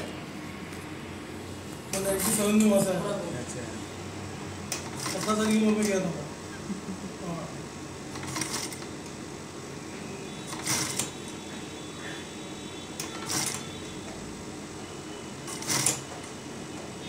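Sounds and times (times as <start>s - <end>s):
sewing machine stitching: 4.7s - 6.0s, 8.1s - 8.9s, 10.5s - 11.1s, 13.0s - 13.7s, 15.4s - 16.1s.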